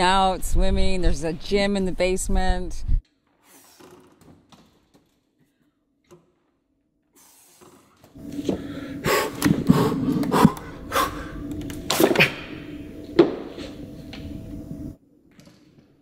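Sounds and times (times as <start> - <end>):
steady low hum: 8.2 - 15.0
person breathing: 8.3 - 11.5.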